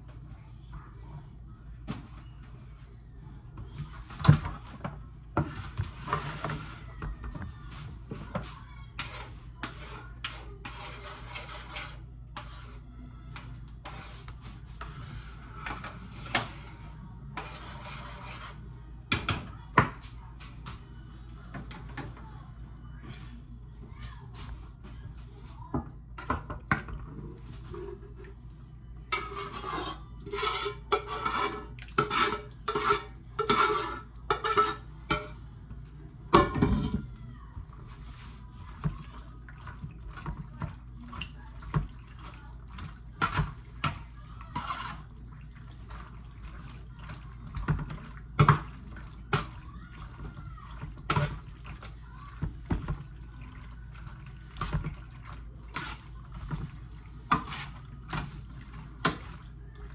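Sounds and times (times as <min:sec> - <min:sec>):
spoon scraping skillet: 0:05.4 - 0:06.9, 0:09.0 - 0:12.8, 0:13.4 - 0:18.6, 0:29.0 - 0:35.4, 0:41.2 - 0:59.9
utensil scraping metal pan: 0:09.0 - 0:12.8, 0:17.4 - 0:18.6, 0:29.1 - 0:35.4, 0:43.2 - 0:45.2, 0:55.6 - 0:56.6, 0:57.3 - 0:59.2.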